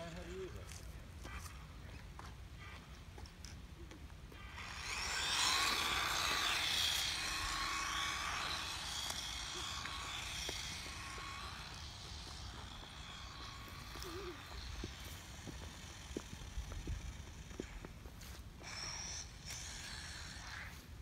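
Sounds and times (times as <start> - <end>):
rc truck motor whine: 4.3 - 21.0.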